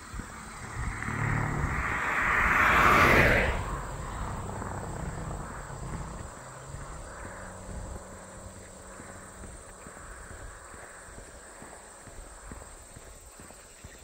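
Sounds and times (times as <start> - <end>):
car passing close by: 0.0 - 10.4.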